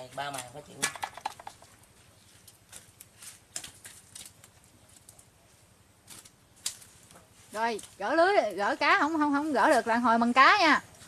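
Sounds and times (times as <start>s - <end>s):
light clicks taps and rustles: 0.3s - 5.3s.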